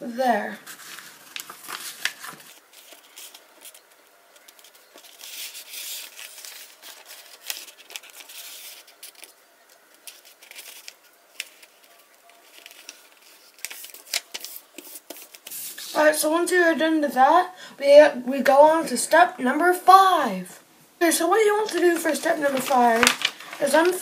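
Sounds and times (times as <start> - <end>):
paper rustling and crinkling: 0.5 - 16.0, 21.4 - 24.0
paper folds pressed ticking: 0.7 - 15.5, 21.5 - 24.0.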